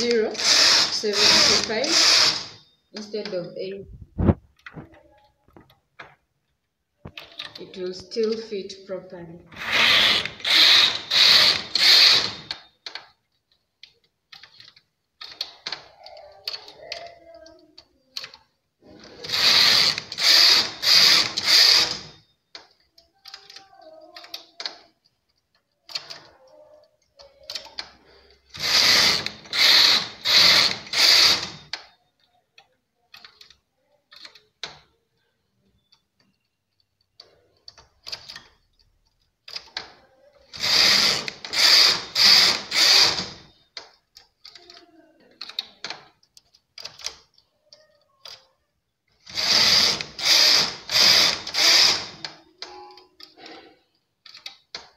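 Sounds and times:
knitting machine carriage clattering: 0.0s - 3.4s.

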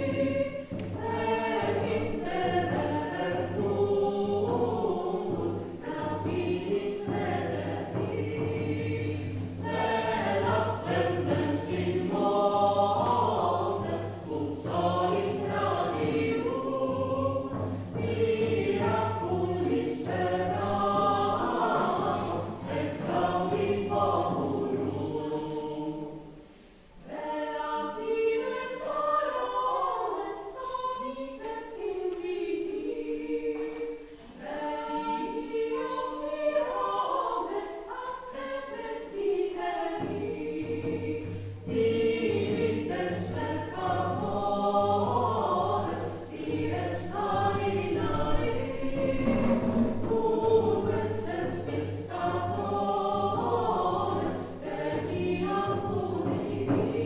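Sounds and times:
choir singing sacred music: 0.0s - 57.0s.

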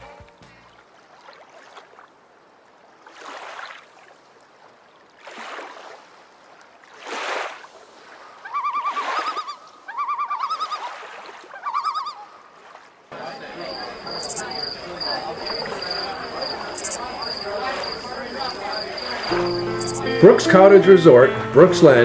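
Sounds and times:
small waves lapping on rocks: 0.8s - 9.8s
bird quavering calls: 8.4s - 10.9s, 11.6s - 12.4s.

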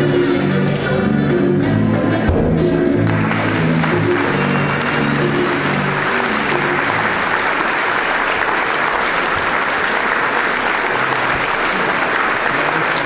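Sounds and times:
music playing: 0.0s - 13.0s
audience applauding: 3.0s - 13.0s.

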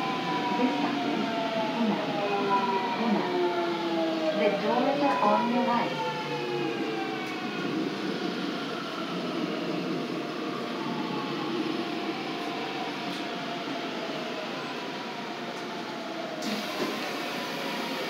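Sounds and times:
train motor whine: 16.4s - 18.0s.

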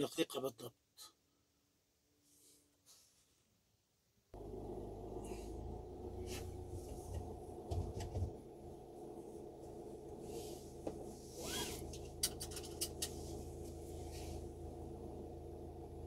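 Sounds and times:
vehicle engines idling: 4.4s - 16.0s
dull knocks: 7.1s - 8.4s.

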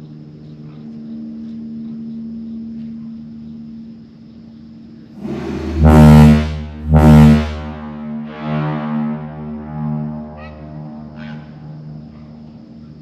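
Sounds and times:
ship horn blasts: 5.2s - 12.8s.

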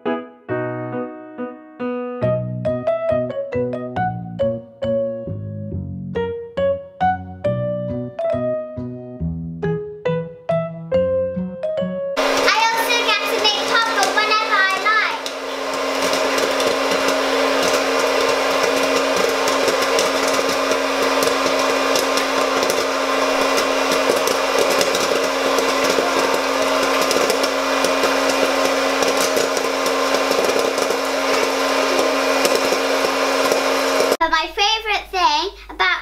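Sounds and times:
popcorn machine fan hum: 12.2s - 34.2s
popcorn kernels popping: 12.3s - 34.2s.

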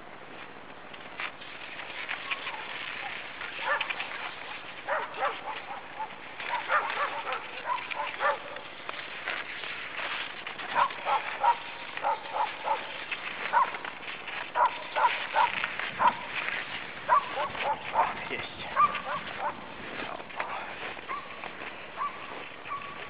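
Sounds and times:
dogs barking: 2.3s - 8.7s, 10.6s - 16.4s, 17.0s - 19.8s, 20.4s - 23.0s.

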